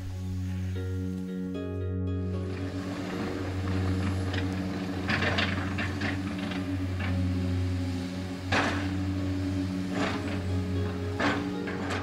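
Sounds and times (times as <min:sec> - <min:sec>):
diesel engine hum: 0:00.0 - 0:12.0
excavator knocks and scrapes: 0:03.6 - 0:07.3, 0:08.5 - 0:09.3, 0:09.9 - 0:12.0.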